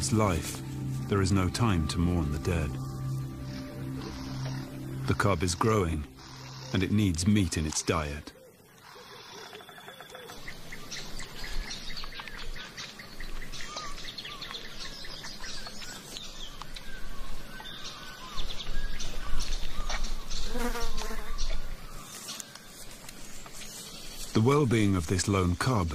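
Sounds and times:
low noise: 0.0 - 8.4, 22.9 - 25.9
flies buzzing: 0.0 - 10.4, 20.2 - 24.4
birds chirping: 0.0 - 25.9.

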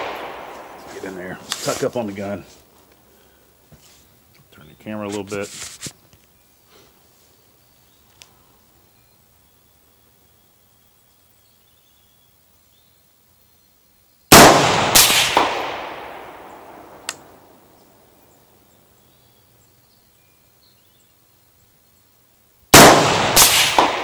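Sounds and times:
rifle shots: 0.0 - 2.1, 14.3 - 17.4, 22.7 - 24.0.

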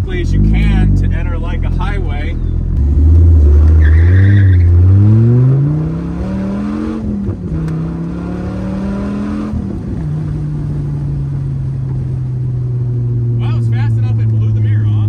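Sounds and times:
car engine accelerating hard: 0.0 - 15.0.

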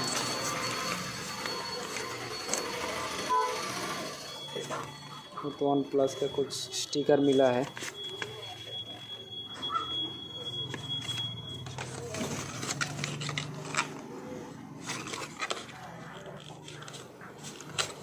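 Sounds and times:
thin high tone: 0.0 - 12.8.

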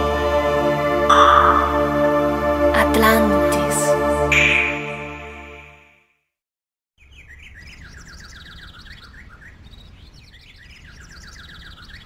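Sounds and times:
songbird singing rapid chirps: 7.0 - 12.0.

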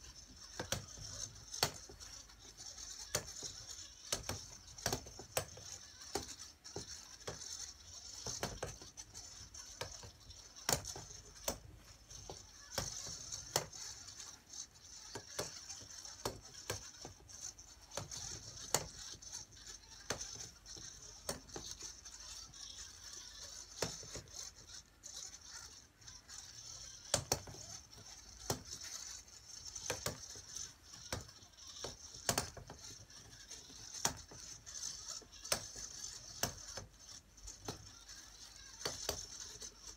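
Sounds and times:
robot balls knocking against wood: 0.2 - 14.3, 29.7 - 36.9.

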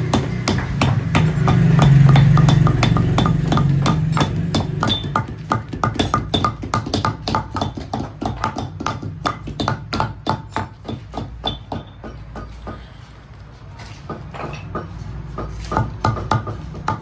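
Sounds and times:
metal tool hammering leather: 0.0 - 12.9.

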